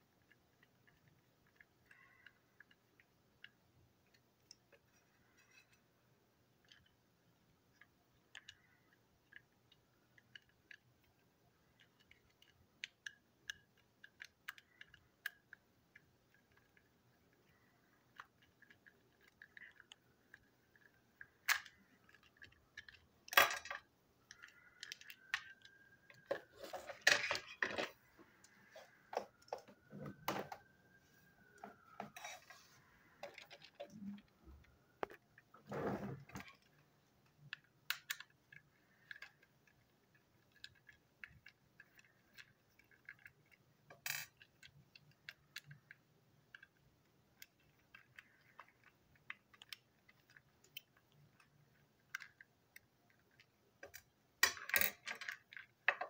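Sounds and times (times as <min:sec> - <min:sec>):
plastic parts clattering: 0:16.3 - 0:30.7, 0:53.1 - 0:56.0.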